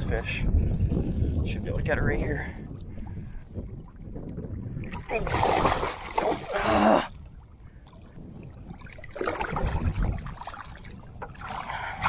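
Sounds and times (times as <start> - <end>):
water noise: 0.0 - 12.0.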